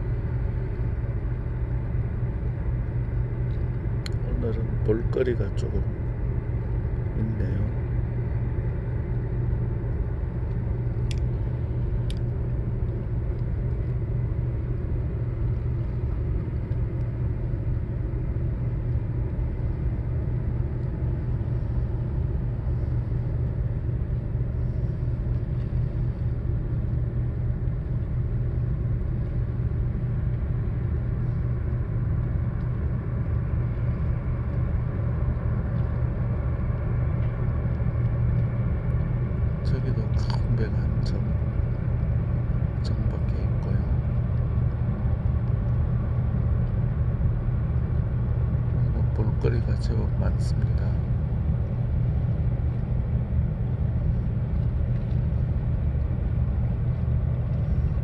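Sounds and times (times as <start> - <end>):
low engine drone: 0.0 - 58.0.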